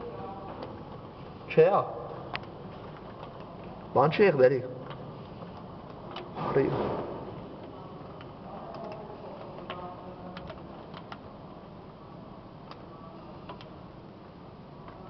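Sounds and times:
rain falling through window: 7.3 - 15.0.

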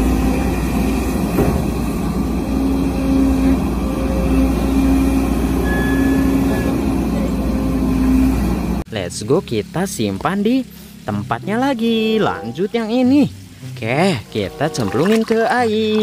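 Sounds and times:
excavator diesel engine under load: 0.0 - 12.6.

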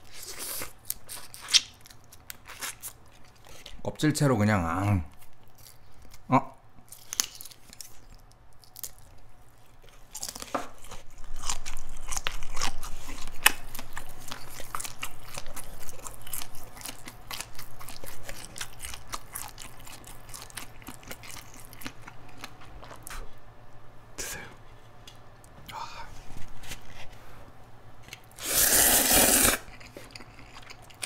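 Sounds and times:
crunching and chewing shrimp: 0.0 - 4.1, 4.8 - 23.3, 28.0 - 31.0.

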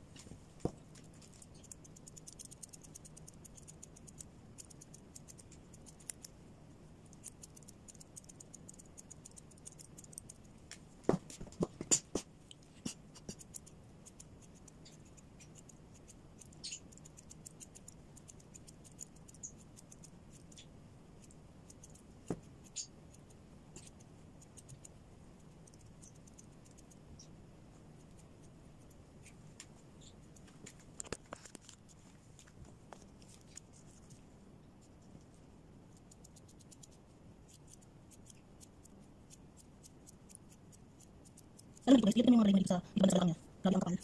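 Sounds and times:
scissors snipping fur: 0.9 - 6.4, 7.1 - 10.5, 11.9 - 20.6, 21.2 - 27.0, 36.0 - 42.3.

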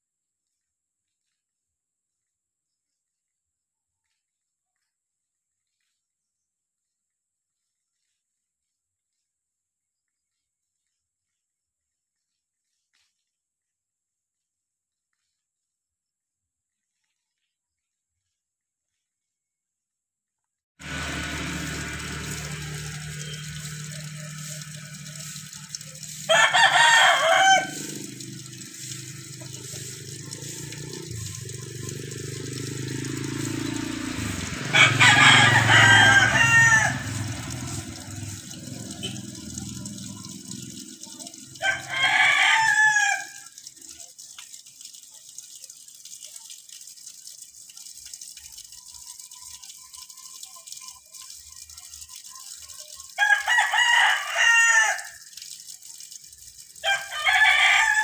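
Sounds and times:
rooster crowing: 20.8 - 31.2, 32.3 - 39.2, 41.6 - 43.5, 53.2 - 55.3, 56.8 - 58.0.

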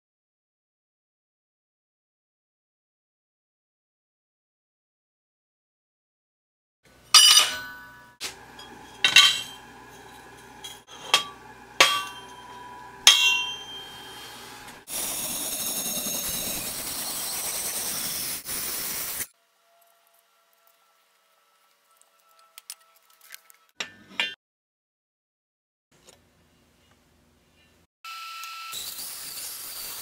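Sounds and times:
metal tubes clanking on steel table: 7.1 - 14.8
steady hiss: 14.3 - 19.3.

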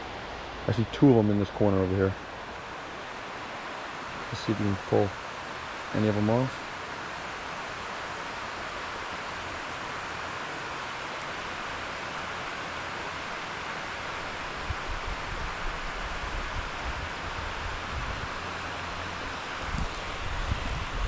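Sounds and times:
outdoor rushing hiss: 0.0 - 21.0
wind buffeting microphone: 14.5 - 21.0.

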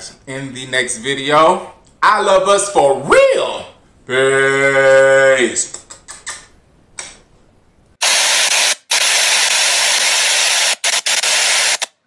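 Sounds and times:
lip smack: 5.7 - 7.2
static-like hiss: 7.6 - 12.0.

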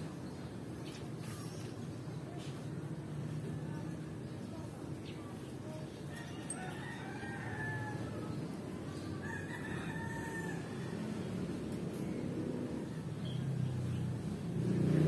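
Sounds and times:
rooster crowing: 6.2 - 8.3, 9.2 - 11.0.

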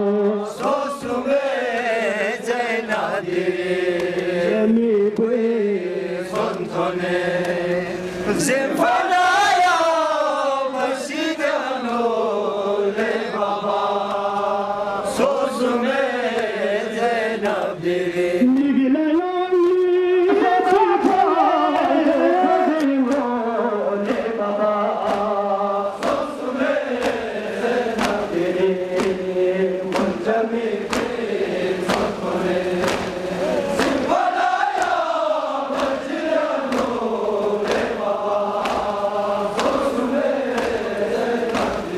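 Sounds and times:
man chanting a lament over loudspeakers: 0.0 - 31.2
rhythmic chest-beating slaps: 0.1 - 41.9.

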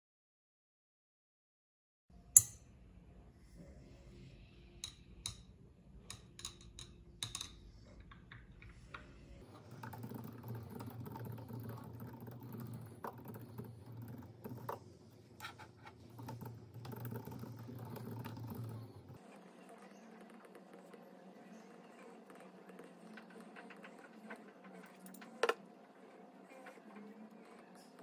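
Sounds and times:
fast keyboard typing: 9.7 - 14.9, 15.6 - 19.1.

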